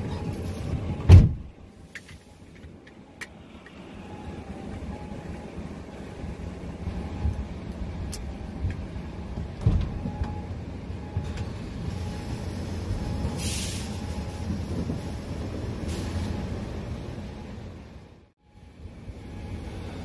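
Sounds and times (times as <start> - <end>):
truck cab rumble: 0.0 - 20.0.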